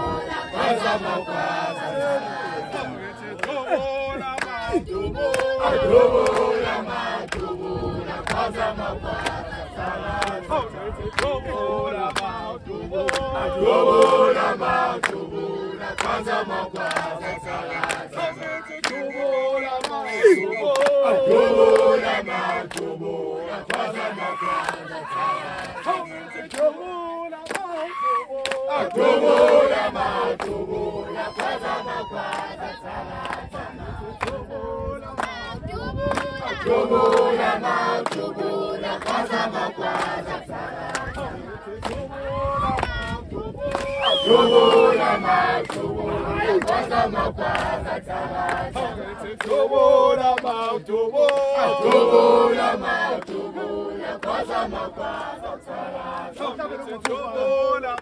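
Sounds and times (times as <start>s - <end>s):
group singing in chorus: 0.0s - 58.0s
sharp hand claps: 7.3s - 7.5s, 15.0s - 15.2s, 18.8s - 19.1s, 19.8s - 20.0s, 20.6s - 21.0s, 27.4s - 27.8s, 28.4s - 29.6s, 37.0s - 37.3s, 38.0s - 38.3s.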